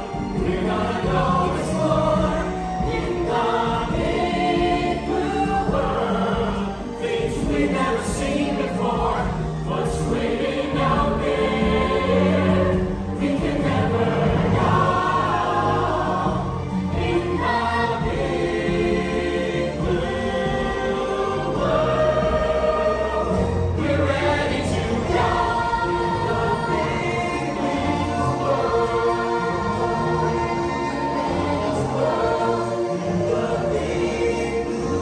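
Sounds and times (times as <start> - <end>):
chorus singing held notes: 0.0 - 35.0
instrumental accompaniment: 0.0 - 35.0.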